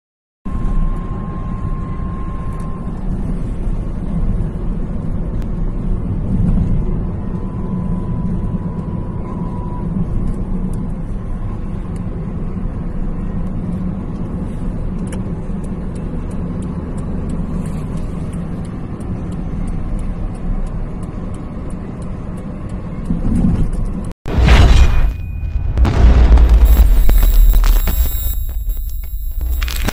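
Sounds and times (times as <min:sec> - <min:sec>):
engine drone: 0:00.5 - 0:29.9
faint regular ticking: 0:14.2 - 0:24.0
tyre and road rumble: 0:23.1 - 0:29.9.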